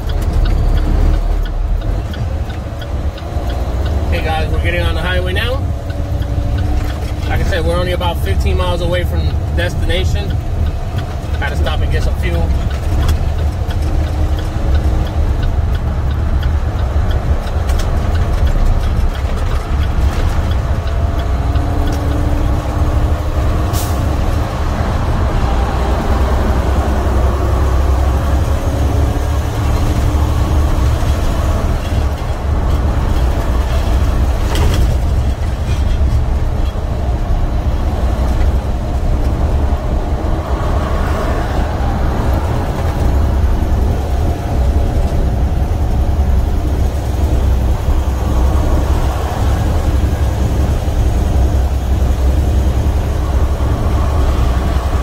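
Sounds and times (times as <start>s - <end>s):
truck diesel engine drone: 0.0s - 55.0s.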